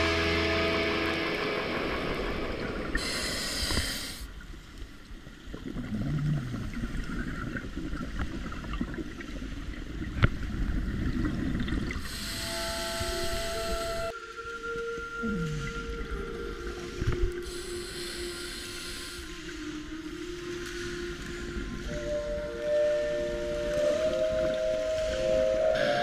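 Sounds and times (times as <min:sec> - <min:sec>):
regulator hissing inhalation: 0:03.0 - 0:04.3, 0:12.1 - 0:14.1, 0:17.4 - 0:19.6
exhaust bubbles burbling: 0:05.5 - 0:09.3.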